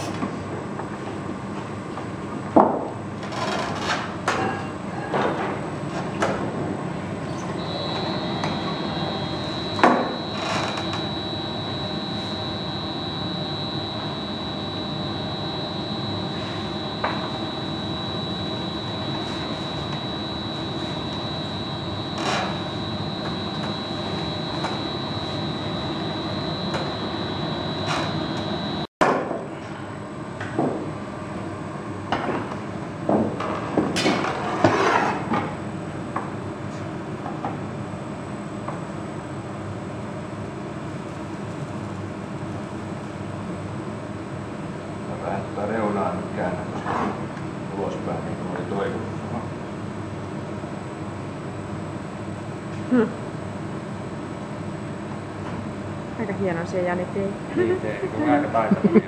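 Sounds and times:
gas furnace roaring: 6.7 - 28.9
high steady whine: 7.6 - 28.9.

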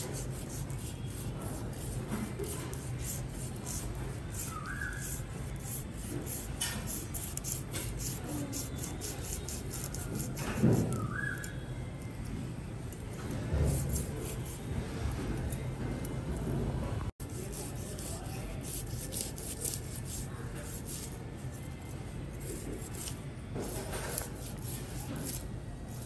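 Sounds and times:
cleaver scraping fish scales: 0.0 - 11.6, 17.2 - 26.0.

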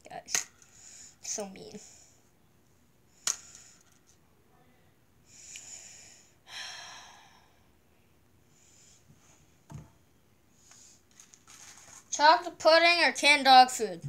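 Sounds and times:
boy breathing in and out: 5.3 - 7.7.

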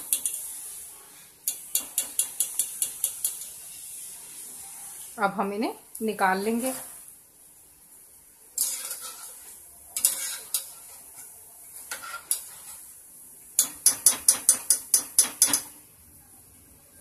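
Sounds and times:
faint oil sizzle: 0.0 - 17.0
skimmer scraping metal pan: 8.6 - 11.2.

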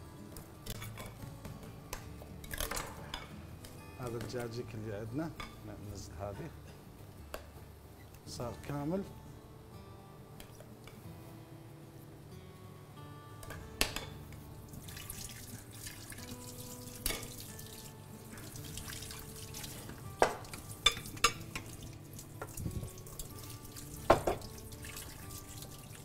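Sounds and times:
kitchenware clinking: 2.4 - 3.3, 19.7 - 21.7, 22.4 - 24.6
water running in sink: 14.7 - 26.0
dishes knocking: 20.2 - 21.4, 24.1 - 24.5.

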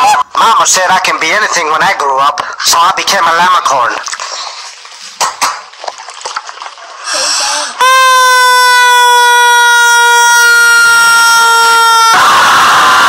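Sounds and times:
rubber toy squealing honk: 7.8 - 12.2.

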